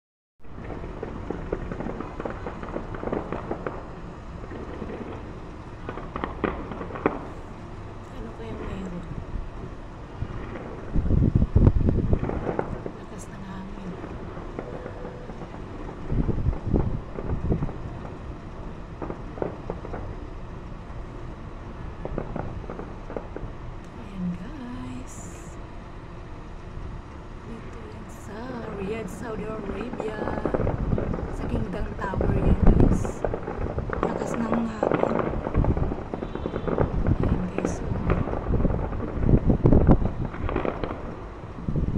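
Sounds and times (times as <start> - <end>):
steady background noise: 0.4 - 41.9
loud fireworks bangs: 0.5 - 7.4, 10.1 - 20.3, 21.6 - 23.6, 28.1 - 41.9
fireworks popping and crackling: 0.5 - 25.5, 27.5 - 41.9.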